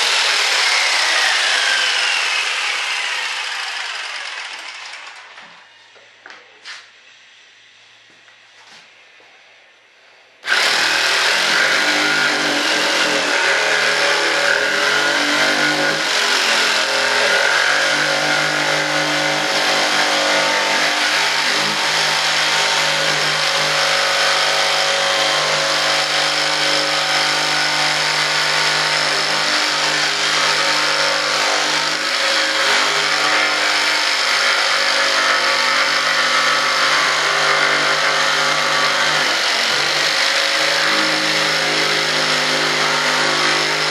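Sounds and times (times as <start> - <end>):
jigsaw cutting: 0.0 - 5.6, 10.4 - 43.9.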